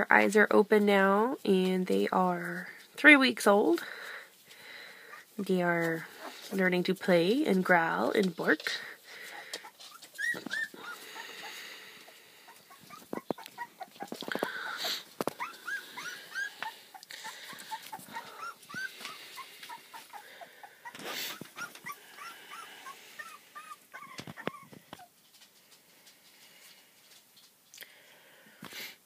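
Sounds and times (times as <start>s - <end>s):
puppies squeaking and whimpering: 9.1s - 25.2s.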